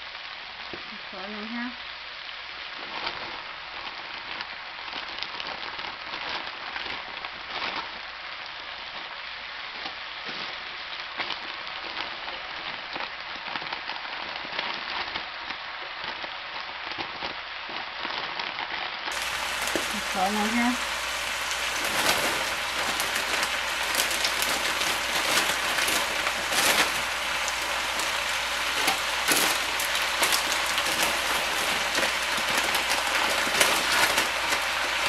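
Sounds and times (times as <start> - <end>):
sausage and onions sizzling in a wok: 0.0 - 35.0
frozen beans poured into wok: 19.1 - 35.0.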